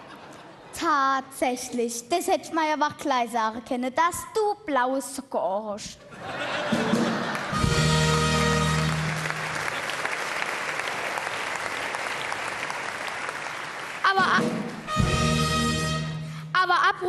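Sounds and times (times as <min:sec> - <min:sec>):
audience clapping: 0:07.0 - 0:15.0.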